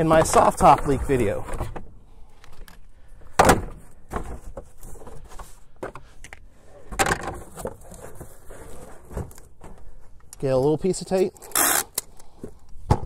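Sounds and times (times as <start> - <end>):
cardboard box rustling and scraping: 7.4 - 9.9.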